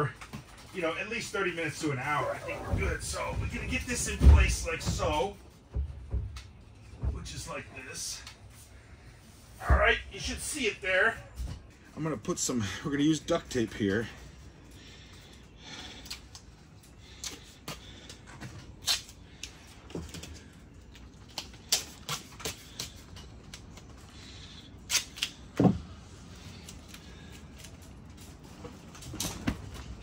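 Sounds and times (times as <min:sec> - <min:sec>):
duct tape tearing: 0:18.8 - 0:19.2, 0:24.8 - 0:25.4.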